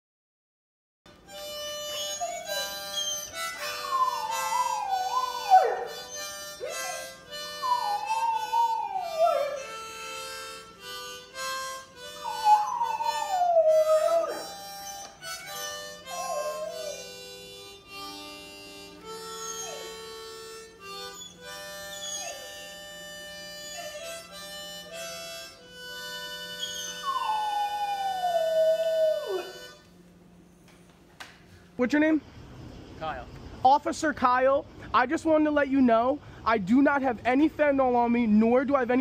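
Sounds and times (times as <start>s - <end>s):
harmonica chords: 1.1s - 30.8s
dog howling: 2.0s - 9.9s, 12.1s - 17.2s, 19.2s - 22.9s, 23.5s - 24.4s, 26.5s - 29.8s.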